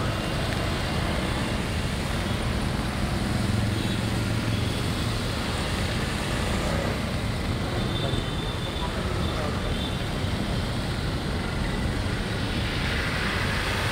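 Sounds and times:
tyres hissing through water: 11.8 - 13.9.

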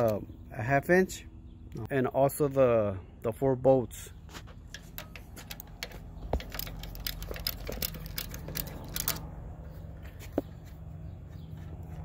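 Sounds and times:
socket ratchet clicking: 4.7 - 9.3.

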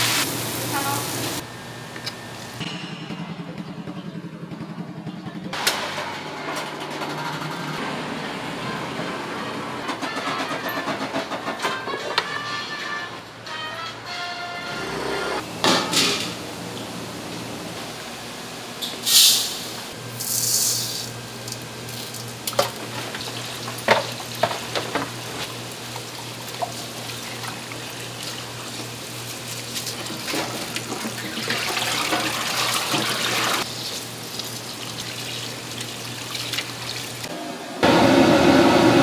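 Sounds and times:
tap water running: 22.1 - 37.3.

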